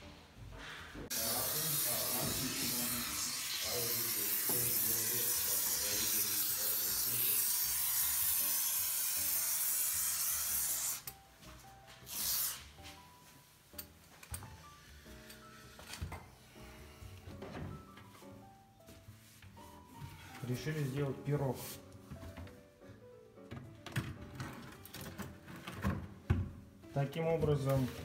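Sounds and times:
foam hissing out of a can: 0:01.1 - 0:11.0, 0:12.0 - 0:12.8.

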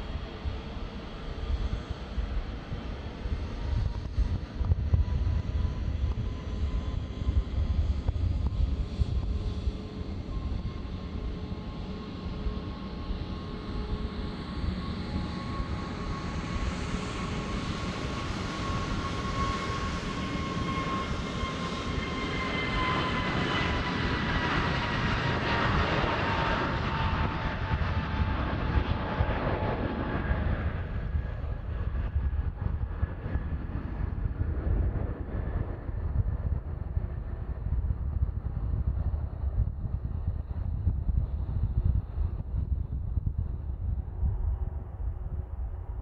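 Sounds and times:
jet engine low rumble: 0:00.0 - 0:46.0
jet engines whining: 0:05.2 - 0:37.7.

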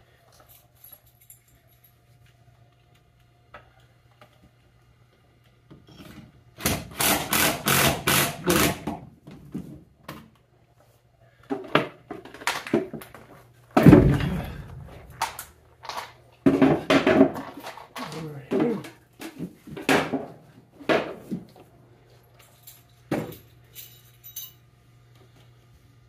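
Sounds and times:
low steady hum: 0:12.6 - 0:26.0
heavy thunk: 0:13.8 - 0:15.2.

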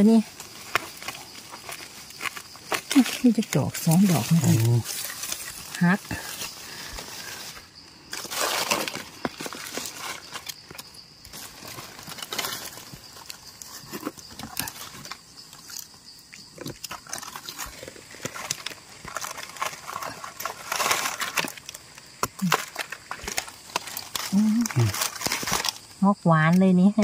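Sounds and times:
dry leaf litter rustling: 0:00.0 - 0:15.9, 0:16.9 - 0:26.1
small clicks and crackles: 0:00.1 - 0:27.0
knife scraping in soil: 0:00.3 - 0:16.0.

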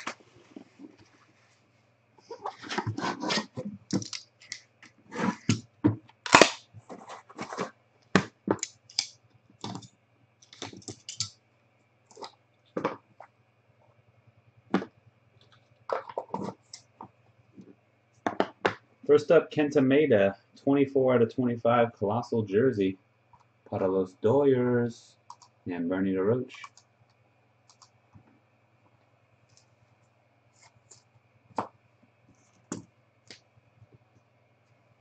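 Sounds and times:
cardboard and plastic wrap rustling: 0:02.2 - 0:04.1, 0:05.0 - 0:07.8.

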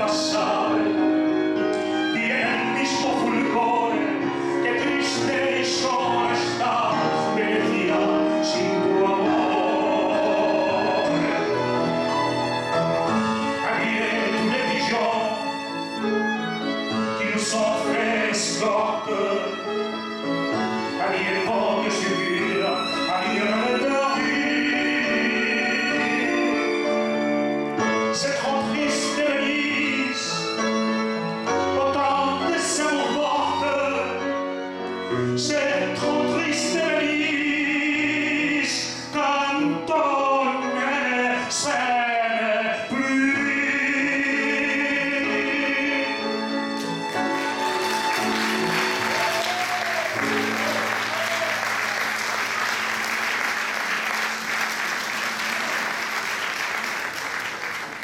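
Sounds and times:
man singing into a microphone: 0:00.0 - 0:01.1, 0:01.9 - 0:11.6, 0:13.5 - 0:15.6, 0:17.0 - 0:19.7, 0:20.8 - 0:26.9, 0:27.8 - 0:30.6, 0:31.6 - 0:34.4, 0:35.0 - 0:46.4
violin: 0:00.0 - 0:56.3
piano: 0:00.0 - 0:58.0
audience applauding: 0:46.8 - 0:58.0.

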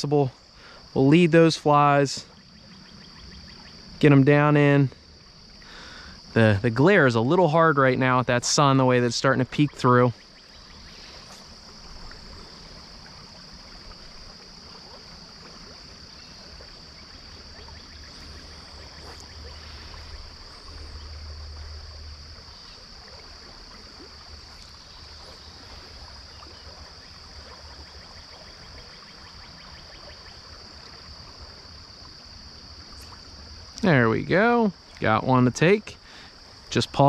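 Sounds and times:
insect drone: 0:00.0 - 0:37.0
river running over stones: 0:10.8 - 0:28.8.

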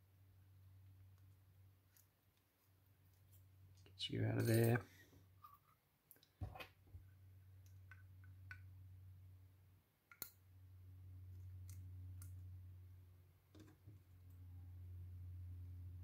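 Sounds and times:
low steady hum: 0:00.0 - 0:16.0
faint metallic clicks and taps: 0:07.6 - 0:08.7.

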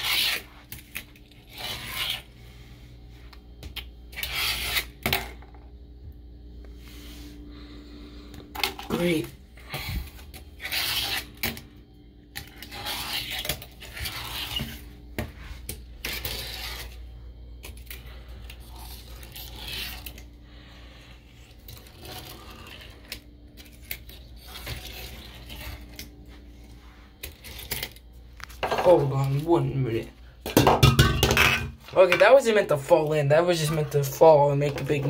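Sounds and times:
fingerboard wheels rolling: 0:16.0 - 0:17.0, 0:18.5 - 0:20.2, 0:21.5 - 0:26.1.

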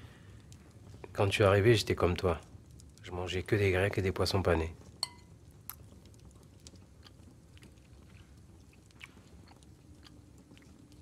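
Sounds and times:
low room hum: 0:00.0 - 0:11.0
people chewing: 0:05.7 - 0:11.0.

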